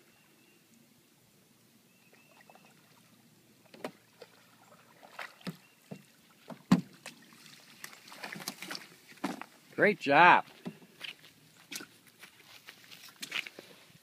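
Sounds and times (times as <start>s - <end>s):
paddle knocking canoe hull: 5.4s - 7.0s.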